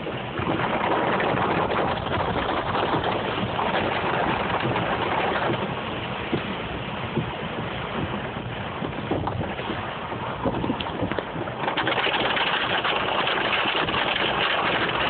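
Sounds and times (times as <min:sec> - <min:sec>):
heavy rain on a vehicle: 0:00.0 - 0:15.0
tyre noise on wet road: 0:00.0 - 0:15.0.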